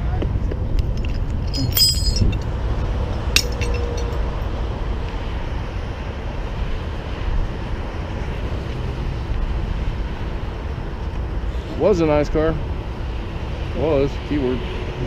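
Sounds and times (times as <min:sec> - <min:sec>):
vehicle engines rumbling: 0:00.0 - 0:15.0
sharp metallic clink: 0:01.5 - 0:02.5, 0:03.2 - 0:04.3.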